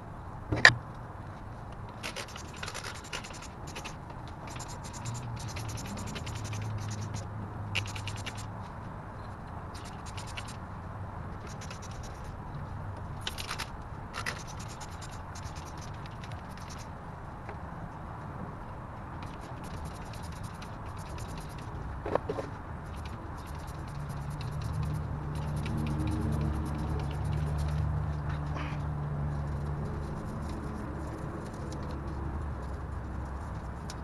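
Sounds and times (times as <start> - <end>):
brush scrubbing engine parts: 1.9 - 8.7, 9.8 - 10.6, 11.4 - 12.3, 14.2 - 16.9, 19.2 - 21.8, 22.8 - 28.7, 29.3 - 34.0.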